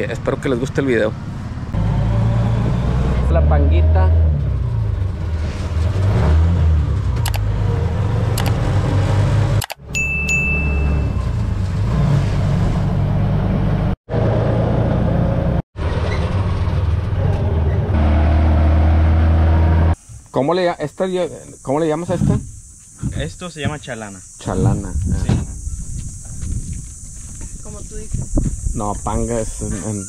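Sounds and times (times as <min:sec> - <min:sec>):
road noise: 0:00.0 - 0:30.0
short high tone: 0:09.8 - 0:11.4.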